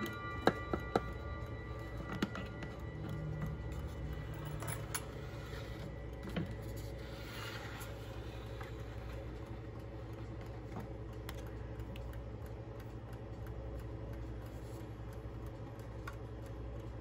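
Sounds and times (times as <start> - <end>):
clock ticking: 0.0 - 6.7, 7.8 - 17.0
steady low hum: 0.0 - 17.0
clock hand clicks: 8.7 - 17.0.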